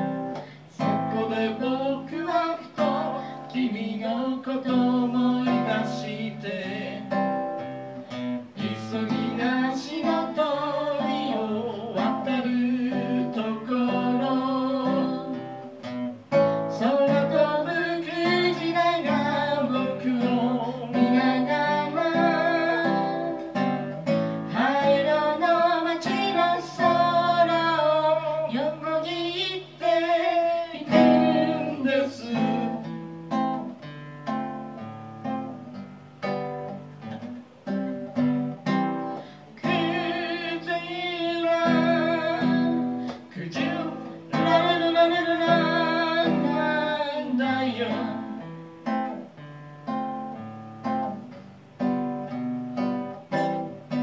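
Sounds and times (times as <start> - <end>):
acoustic guitar strumming: 0.0 - 54.0
man singing: 0.4 - 7.4, 8.5 - 15.6, 16.7 - 33.0, 39.5 - 48.4.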